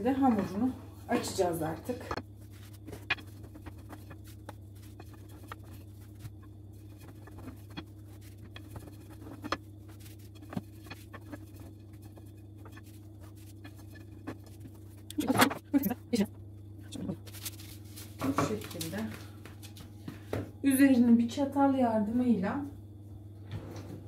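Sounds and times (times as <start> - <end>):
steady low hum: 0.0 - 24.0
hands handling dough: 0.1 - 15.8, 17.2 - 20.2.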